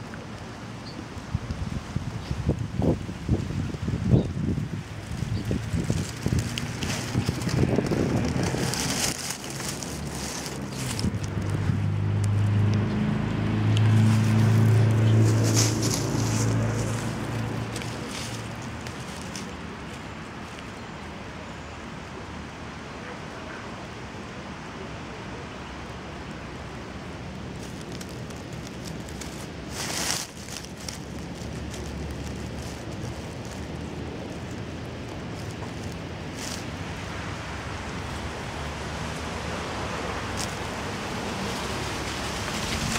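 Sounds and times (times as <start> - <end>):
low engine hum: 0.0 - 20.4, 24.9 - 42.9
dry leaves rustling: 0.0 - 21.4, 26.2 - 42.9
low outdoor rumble: 0.0 - 42.9
wind on microphone: 1.2 - 19.7.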